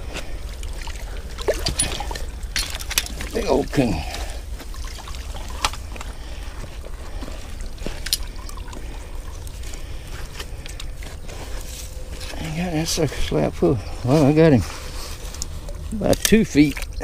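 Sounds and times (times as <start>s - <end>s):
water sloshing and dripping: 0.0s - 12.4s.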